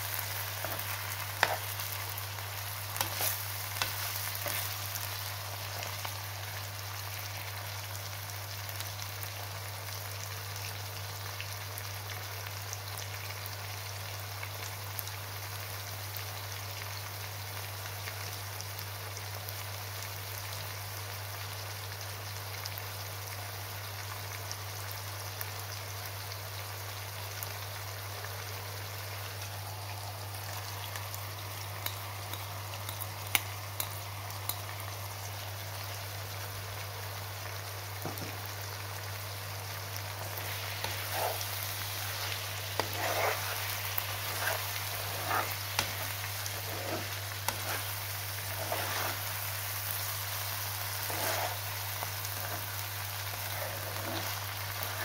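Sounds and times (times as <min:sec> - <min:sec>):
food sizzling in a frying pan: 0:00.0 - 0:55.0
scraping through food in pan: 0:00.2 - 0:02.0, 0:02.9 - 0:05.2, 0:40.2 - 0:55.0.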